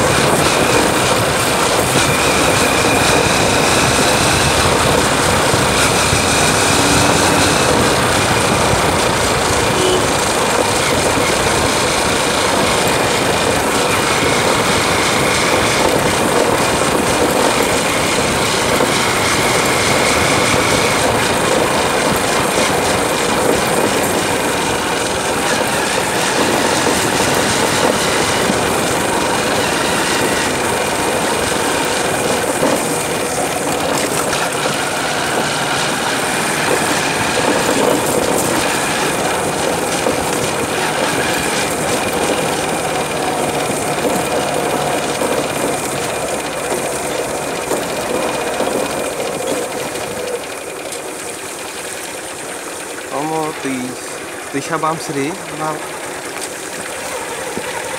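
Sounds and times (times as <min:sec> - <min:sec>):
motorcycle engine running: 0:00.0 - 0:57.9
wind and road noise: 0:00.0 - 0:57.9.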